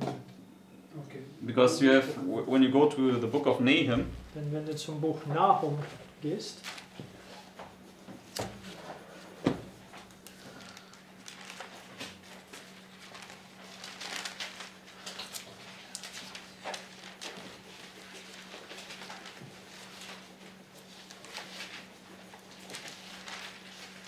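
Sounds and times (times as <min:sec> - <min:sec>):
thin pages rustling: 0:06.6 - 0:07.7, 0:08.3 - 0:24.0.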